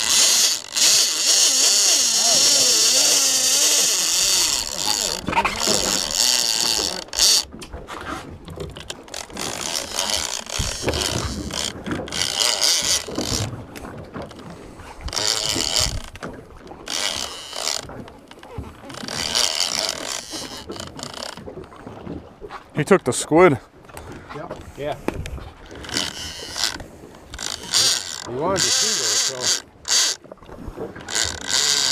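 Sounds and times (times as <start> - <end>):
fishing reel ratchet rattling: 0.0 - 7.5, 8.7 - 13.5, 15.1 - 16.3, 16.9 - 21.4, 25.6 - 30.2, 31.0 - 31.9.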